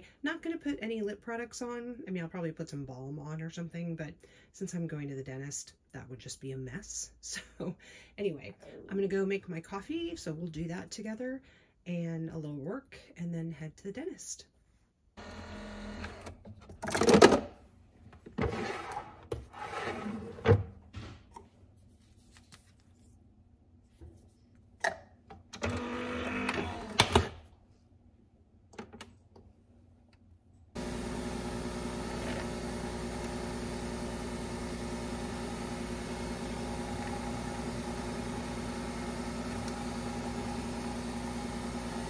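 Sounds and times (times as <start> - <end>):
coffee machine brewing hum: 25.6 - 27.0, 30.8 - 42.0
coffee pouring into cup: 30.8 - 42.0.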